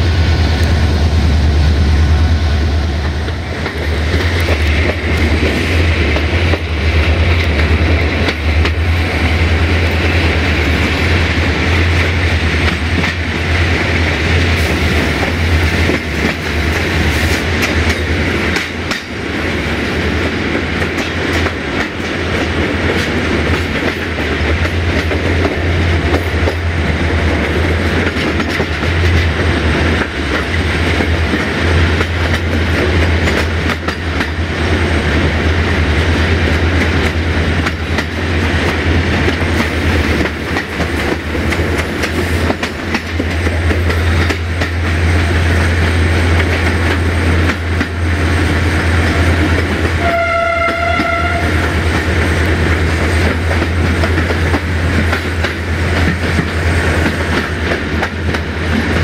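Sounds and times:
rushing air: 0.0 - 20.8
train rolling rumble: 0.0 - 59.0
wheels clicking over rail joints: 20.2 - 34.4, 36.5 - 45.0.

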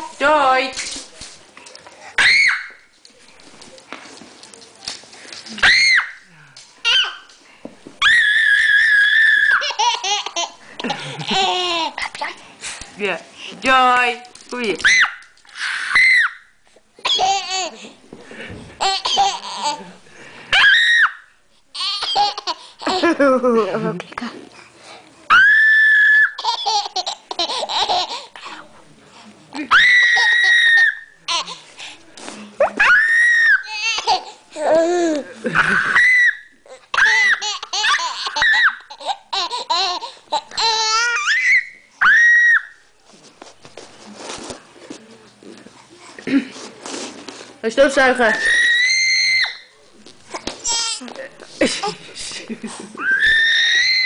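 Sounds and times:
baby laughing: 6.8 - 7.3, 9.4 - 12.4, 17.0 - 17.9, 18.8 - 19.9, 21.8 - 23.4, 26.4 - 28.5, 33.7 - 36.0, 36.7 - 41.6
baby laughing and squealing: 8.0 - 10.6, 25.6 - 28.3, 32.8 - 42.7.

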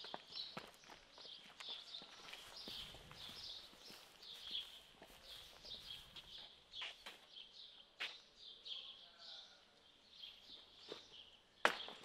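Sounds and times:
footsteps on pavement: 0.0 - 8.3.

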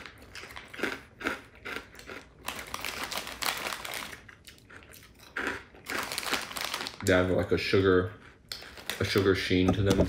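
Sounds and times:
foil snack bag crinkling: 0.0 - 4.4, 5.8 - 7.8
crackers being chewed: 0.0 - 10.0.

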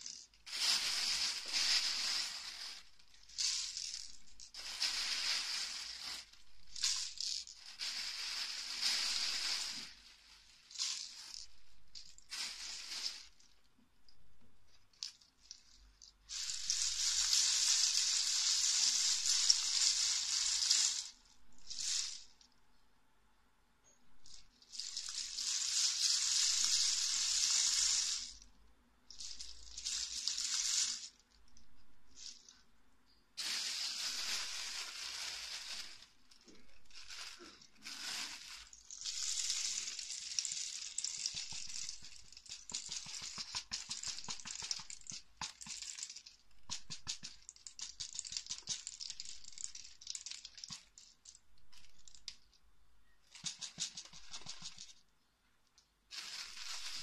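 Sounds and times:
capsules rattling on plastic plate: 38.6 - 51.4, 53.3 - 55.0.

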